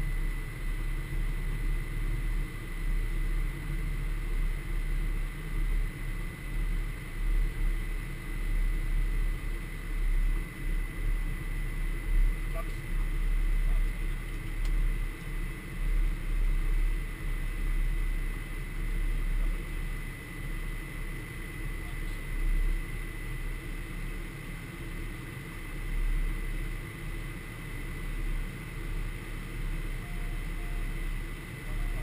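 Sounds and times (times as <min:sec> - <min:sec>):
jet engine drone: 0:00.0 - 0:32.0.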